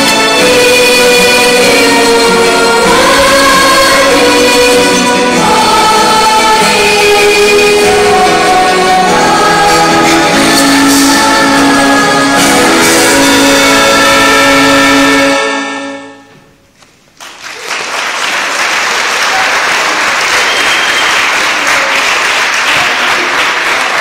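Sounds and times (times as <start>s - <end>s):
live music sustained chord: 0.0s - 16.6s
audience applause: 17.2s - 24.0s.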